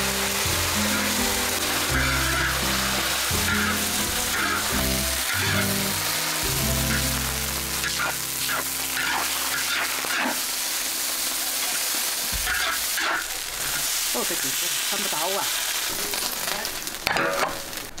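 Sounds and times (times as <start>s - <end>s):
cabbage sizzling in a wok: 0.0s - 18.0s.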